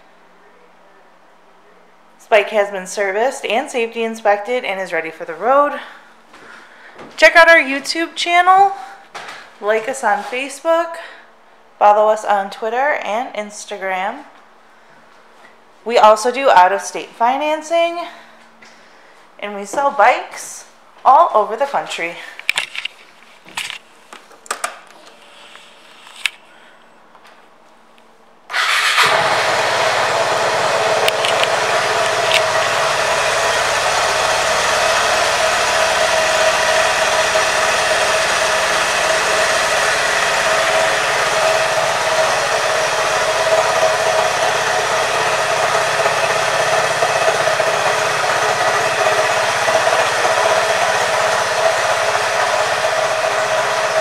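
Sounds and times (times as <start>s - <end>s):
scooter engine starting and idling: 28.5s - 54.0s.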